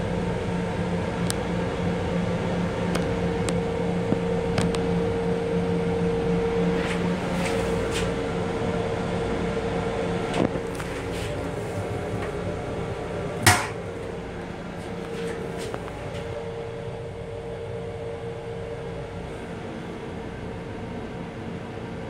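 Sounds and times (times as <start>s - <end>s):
railcar hum: 0.0s - 22.0s
metal bin flap banging shut: 13.4s - 13.8s
metal bin flap knock: 13.4s - 13.8s.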